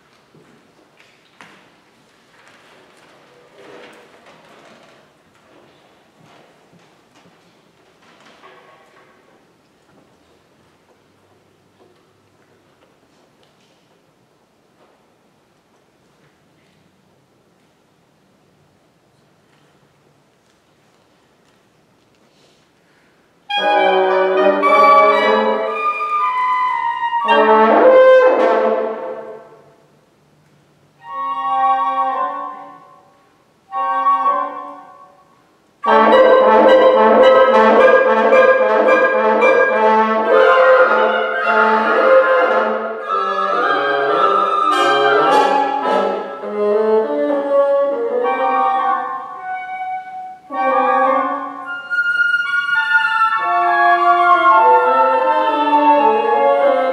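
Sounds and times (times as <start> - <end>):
woodwind quintet playing: 23.5 - 29.7, 31.0 - 56.9.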